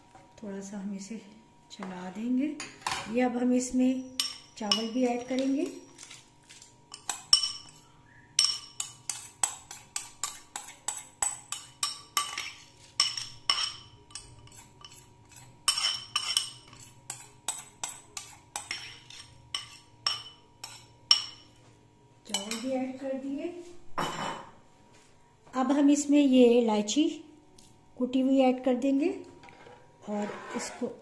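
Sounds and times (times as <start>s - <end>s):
metal spoon clinking on glass bowl: 4.0s - 6.2s, 6.9s - 7.8s, 8.4s - 15.0s, 15.7s - 21.4s, 22.3s - 22.7s.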